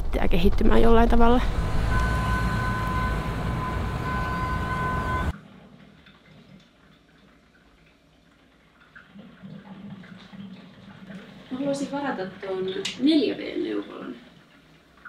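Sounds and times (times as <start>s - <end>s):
transit vehicle cabin rumble: 0.0s - 5.3s
steady high tones: 1.4s - 5.3s.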